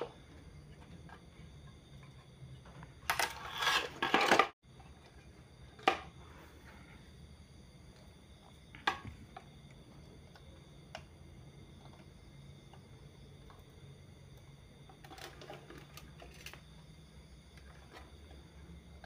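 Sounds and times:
circuit board rattling and scraping: 3.0s - 4.6s.

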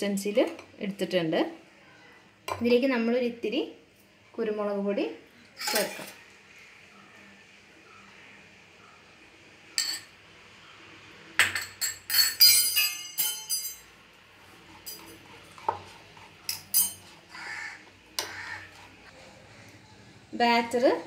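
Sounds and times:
whisk clinking on glass bowl: 16.4s - 17.2s.

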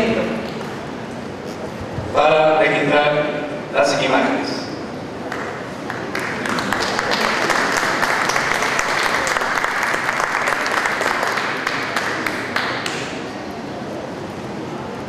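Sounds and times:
audience applauding: 5.2s - 13.4s.

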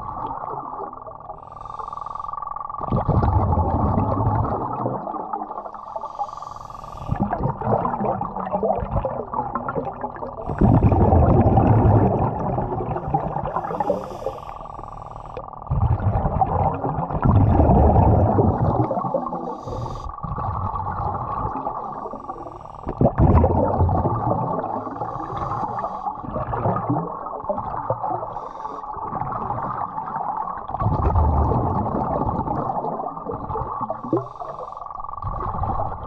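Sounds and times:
steady hum: 0.0s - 29.8s
exhaled bubbles rumbling underwater: 0.0s - 36.0s
regulator inhalation hiss: 1.3s - 2.4s, 5.7s - 7.2s, 13.5s - 15.4s, 19.3s - 20.2s, 21.9s - 22.9s, 24.9s - 26.2s, 28.3s - 28.9s, 34.0s - 35.0s.

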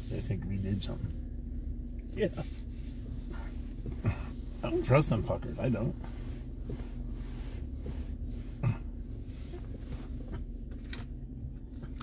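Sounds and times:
steady low rumble: 0.0s - 12.0s
person coughing: 4.0s - 4.4s, 8.6s - 8.9s.

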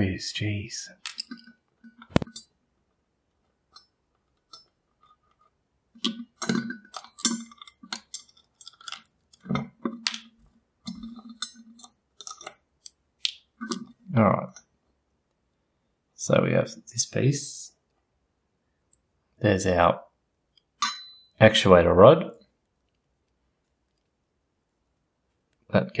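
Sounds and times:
screwdriver clicking on metal screws: 1.0s - 1.5s.

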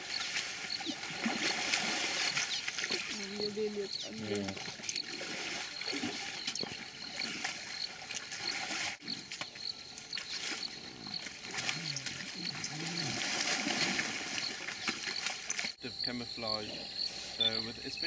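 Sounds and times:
insects chirping: 0.0s - 18.0s
rhinoceroses calling: 10.4s - 15.2s.

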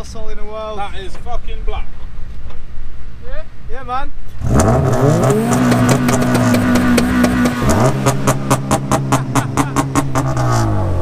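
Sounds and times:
exhaust crackle: 4.2s - 11.0s
car engine revving: 4.3s - 11.0s.

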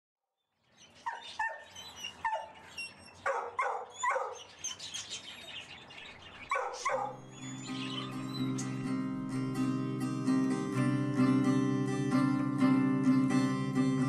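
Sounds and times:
dog barking: 3.2s - 4.5s, 6.5s - 7.2s.

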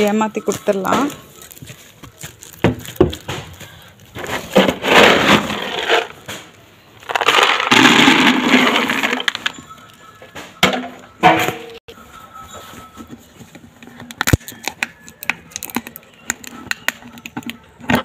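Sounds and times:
pellets pouring into plastic bucket: 7.0s - 9.3s.

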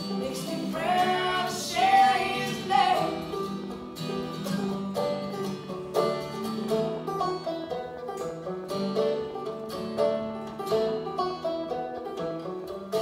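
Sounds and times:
acoustic guitars picking: 0.0s - 13.0s
woman singing: 0.1s - 3.3s.

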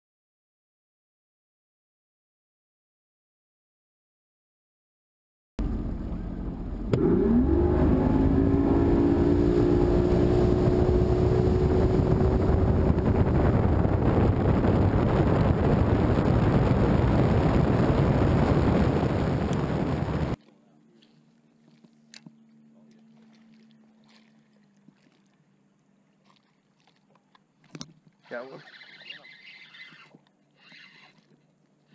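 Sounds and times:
outboard motor throttling up: 5.6s - 20.4s
rush of wind and water: 6.9s - 20.4s.

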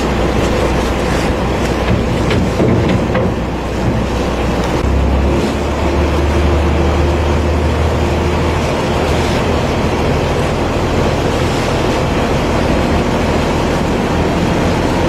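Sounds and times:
boat engine humming: 0.0s - 15.0s
rush of noise: 0.0s - 15.0s.

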